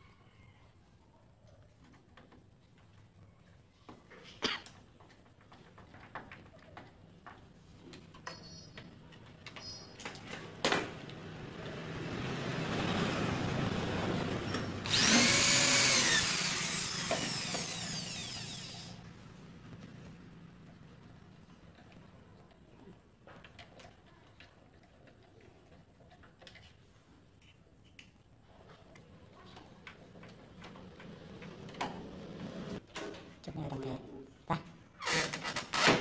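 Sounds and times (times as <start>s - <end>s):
electric drill boring into wood: 14.7s - 19.0s.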